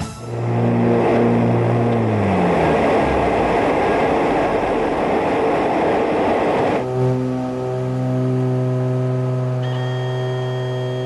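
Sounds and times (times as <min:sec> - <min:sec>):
rush of airflow: 0:00.0 - 0:06.8
aircraft engine: 0:00.0 - 0:11.0.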